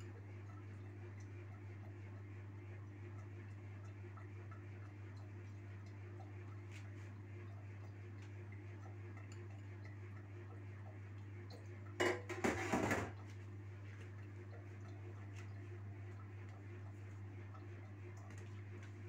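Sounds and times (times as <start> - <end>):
steady low hum: 0.0 - 19.0
kitchenware clattering: 12.0 - 13.1.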